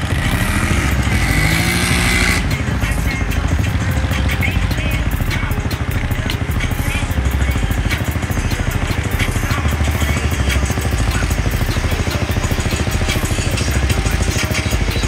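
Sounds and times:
atv engine revving: 0.0 - 15.0
atv engines running: 0.0 - 15.0.

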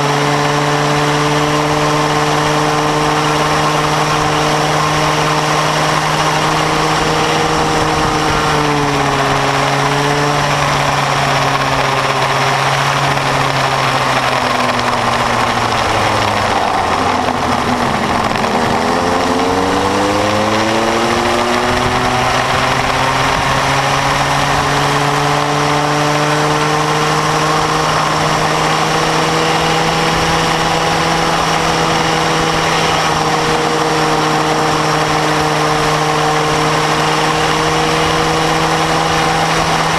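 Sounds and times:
go-kart two-stroke engine: 0.0 - 39.9.

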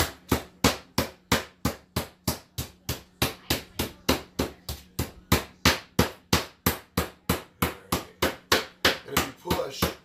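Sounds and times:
meat mallet pounding meat: 0.0 - 10.0.

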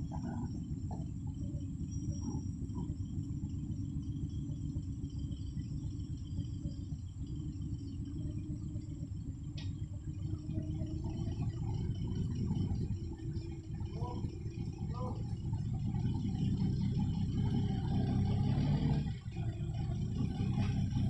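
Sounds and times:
voices: 0.0 - 3.2, 9.6 - 18.4
forklift engine running: 0.0 - 21.0.

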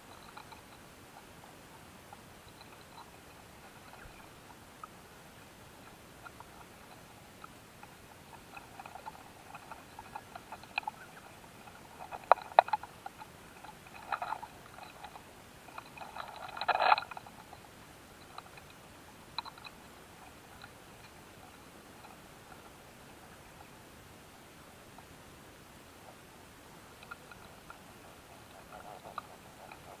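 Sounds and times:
insect ticking: 0.0 - 1.3, 2.1 - 5.0, 5.8 - 22.7, 27.0 - 30.0
insect crackling scratch: 8.3 - 17.6
sharp insect clicks: 19.4 - 19.8.

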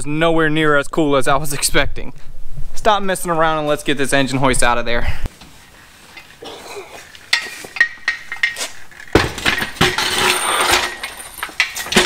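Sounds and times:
metal scraping on concrete: 5.6 - 12.0
metal engine hoist clanking: 6.1 - 12.0.

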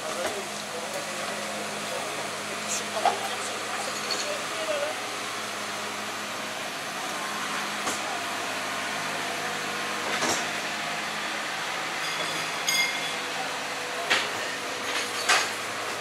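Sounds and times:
high ringing tone: 12.0 - 13.3.

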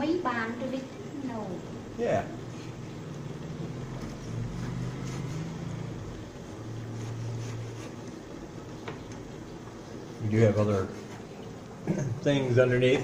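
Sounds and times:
low motor hum: 1.5 - 9.8.

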